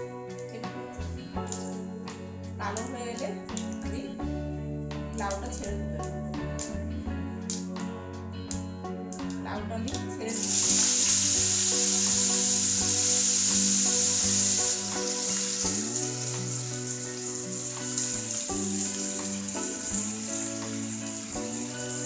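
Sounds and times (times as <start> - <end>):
vegetables sizzling in hot oil: 10.3 - 22.0.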